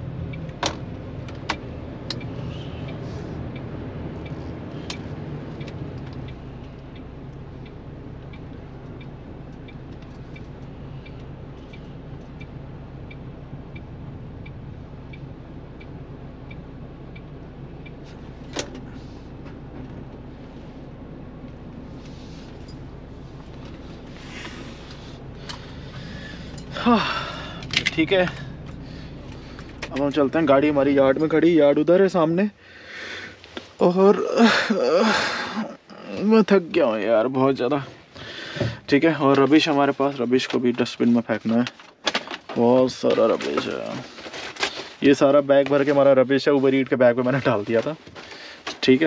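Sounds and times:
truck diesel engine idling: 0:00.0 - 0:40.2
faint regular ticking: 0:01.2 - 0:20.2.

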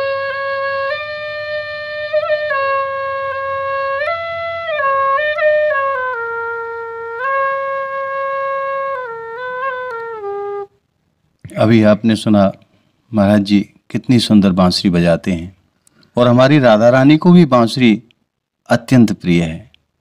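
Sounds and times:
bamboo flute melody: 0:00.0 - 0:10.8.

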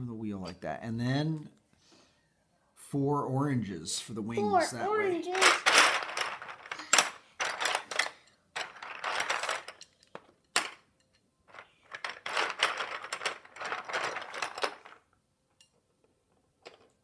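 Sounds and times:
plastic sticks rattling in a box: 0:05.3 - 0:10.8, 0:11.5 - 0:15.1.

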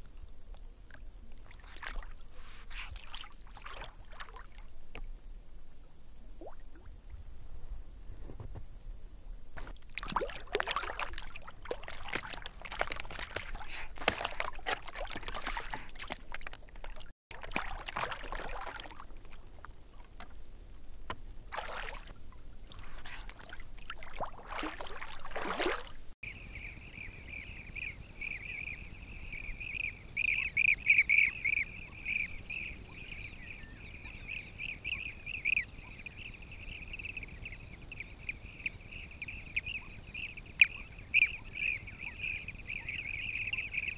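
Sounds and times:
otters splashing in water: 0:00.9 - 0:04.7, 0:09.6 - 0:20.4, 0:21.0 - 0:26.1
birds calling with trilled calls: 0:26.3 - 0:43.9.

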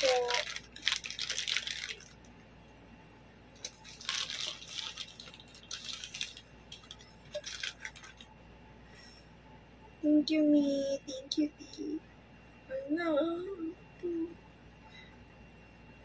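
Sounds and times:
plastic wrapping crinkling: 0:00.0 - 0:02.3, 0:03.6 - 0:08.3.

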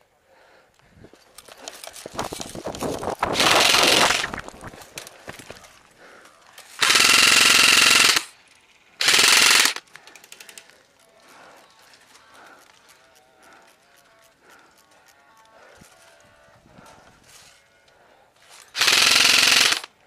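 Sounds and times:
rapid clicks and rattles: 0:01.2 - 0:16.4
airsoft gun full-auto bursts: 0:03.3 - 0:04.4, 0:06.7 - 0:08.4, 0:09.0 - 0:10.6, 0:18.7 - 0:20.0.

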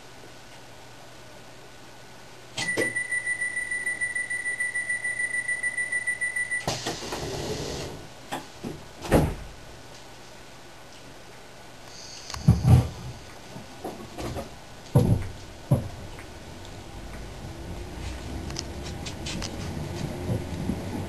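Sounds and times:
rapidly pulsing high beep: 0:02.6 - 0:06.7
hiss of sliding doors closing: 0:06.6 - 0:08.1.

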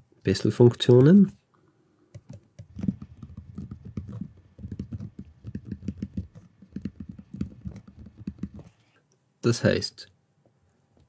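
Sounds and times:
stylus tapping on touchscreen: 0:02.1 - 0:08.8.

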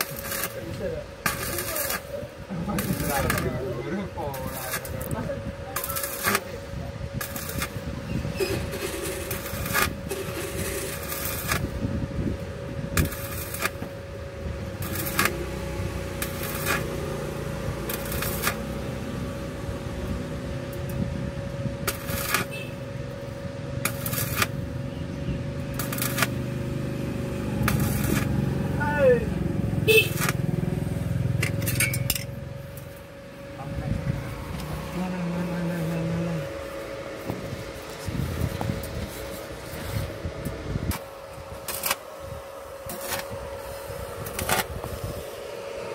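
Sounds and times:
arc welding sizzling crackle: 0:00.0 - 0:45.9
steady hum: 0:00.0 - 0:45.9
low rumble: 0:23.0 - 0:41.0.

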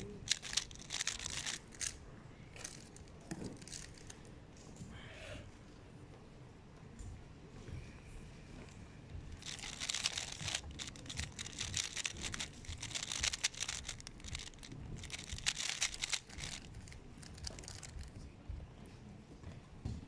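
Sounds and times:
puzzle cube clicking: 0:00.0 - 0:02.0, 0:03.6 - 0:04.1, 0:09.4 - 0:18.1.

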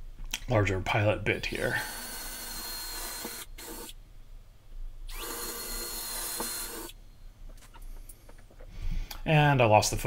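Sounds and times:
power drill whining: 0:01.7 - 0:04.0, 0:05.1 - 0:07.0.

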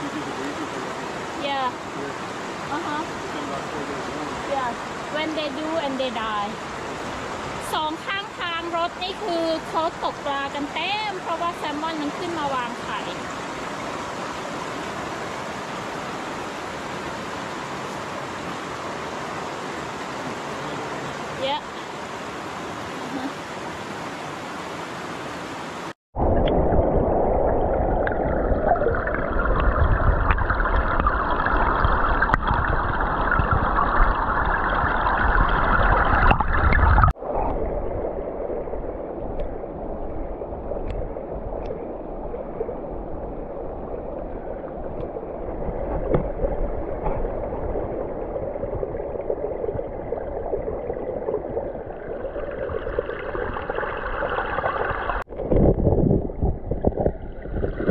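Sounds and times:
creek water rushing over stones: 0:00.0 - 0:25.9, 0:40.7 - 0:56.0
underwater gurgling of current: 0:26.2 - 0:57.9.

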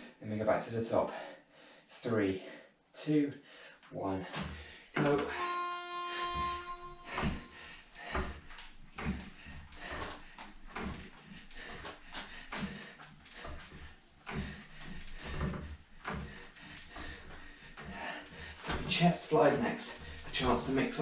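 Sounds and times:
pull cords knocking and creaking: 0:04.3 - 0:21.0.

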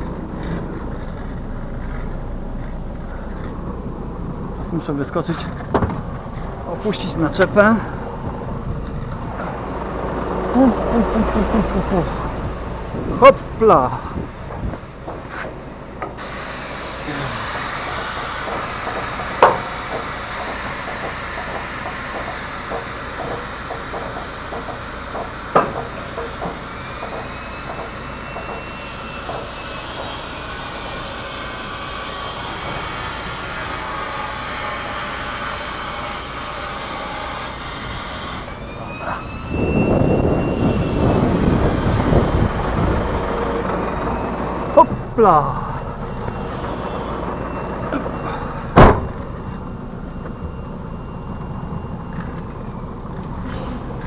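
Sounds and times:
low rumble: 0:00.0 - 0:15.1
compressed air hissing: 0:16.2 - 0:33.8.

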